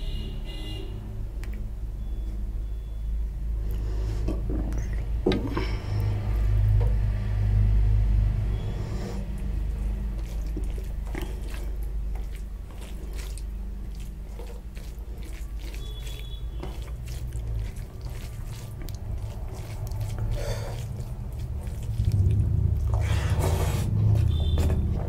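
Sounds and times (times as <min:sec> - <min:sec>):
wet squelches of mixing rice: 0:00.0 - 0:25.0
low rumble: 0:18.8 - 0:25.0.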